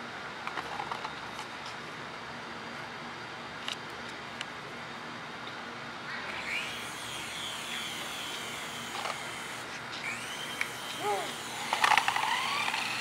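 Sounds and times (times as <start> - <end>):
toy helicopter rotor motor whining: 6.3 - 13.0.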